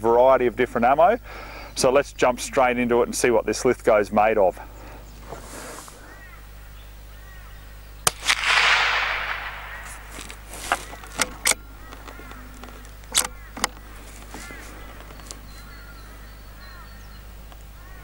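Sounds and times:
rifle shot with echo: 8.0s - 10.5s
rifle bolt clicking: 8.4s - 13.9s.

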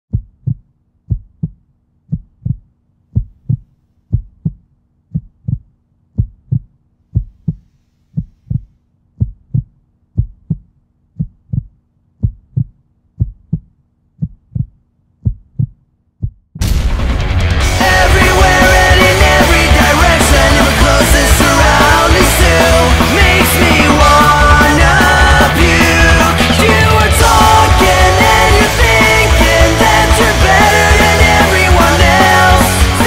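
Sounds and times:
heartbeat thumps: 0.1s - 17.0s
loud punk rock music: 16.6s - 33.0s.

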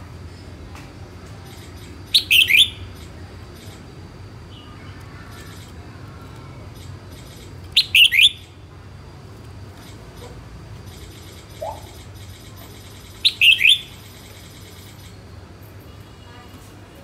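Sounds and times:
bird singing bright notes: 2.1s - 2.9s, 7.8s - 8.5s, 13.2s - 14.0s.

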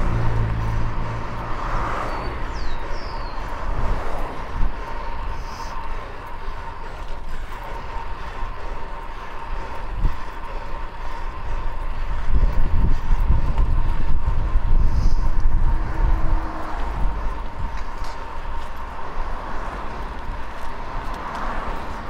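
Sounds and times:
city traffic: 0.0s - 22.0s
wind rushing over microphone: 0.0s - 22.0s.

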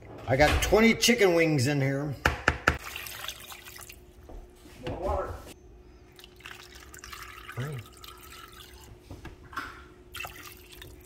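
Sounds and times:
water splashing into a bowl: 2.8s - 4.1s, 10.1s - 11.0s.

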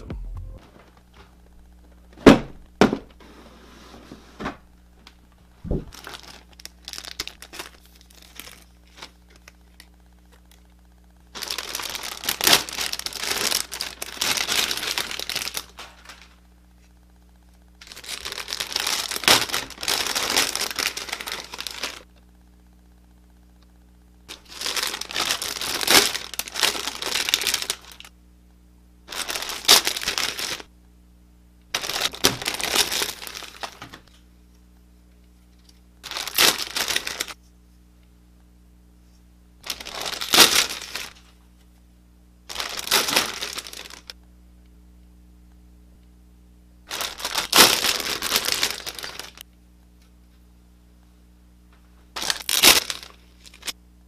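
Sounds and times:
plastic bags crinkling: 5.8s - 10.6s, 11.3s - 16.4s, 17.8s - 22.1s, 24.3s - 28.1s, 29.1s - 30.7s, 31.7s - 34.1s, 36.0s - 37.4s, 39.6s - 41.4s, 42.5s - 44.2s, 46.9s - 49.4s, 52.2s - 53.8s.

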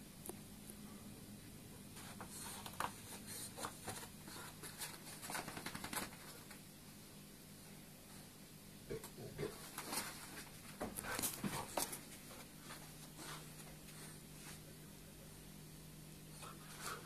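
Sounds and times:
puppy claws scratching on floor: 2.0s - 6.6s.

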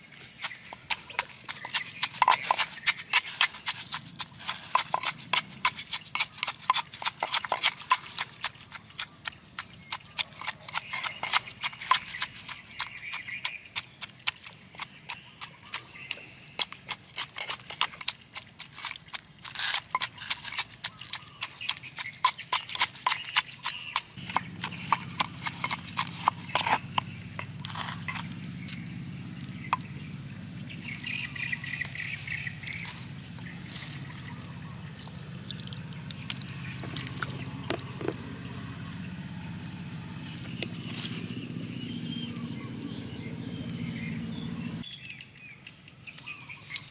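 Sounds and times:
wooden pestle pounding in mortar: 0.4s - 28.4s.

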